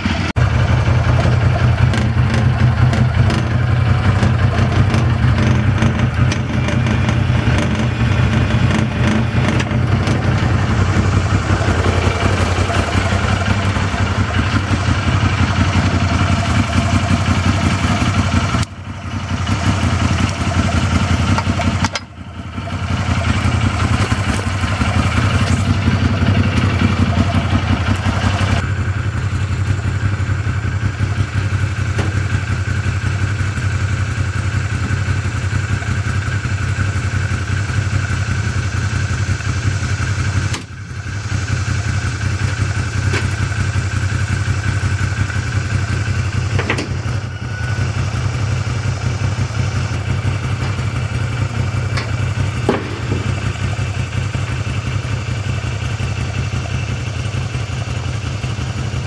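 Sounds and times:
engine idling: 0:00.0 - 0:59.0.

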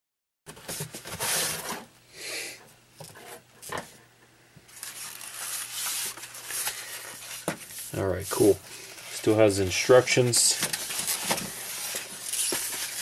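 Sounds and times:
cardboard rustling: 0:00.5 - 0:01.9, 0:04.7 - 0:13.0
styrofoam scraping and rubbing: 0:00.6 - 0:01.9, 0:04.7 - 0:13.0.

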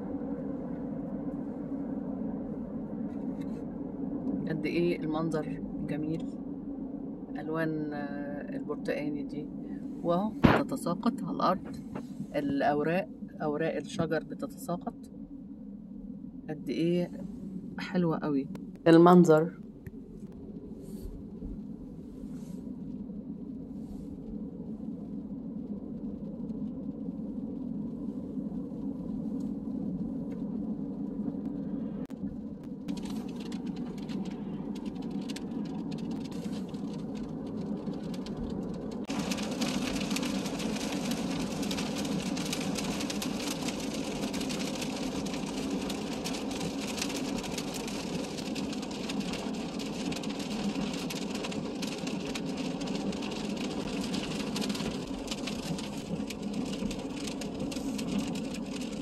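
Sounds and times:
car interior hum: 0:00.0 - 0:59.0
rain and wet road hiss: 0:20.7 - 0:59.0.

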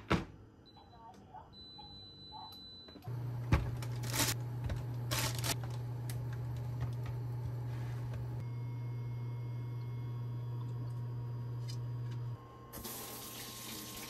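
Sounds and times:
induction cooktop humming: 0:02.8 - 0:14.0.

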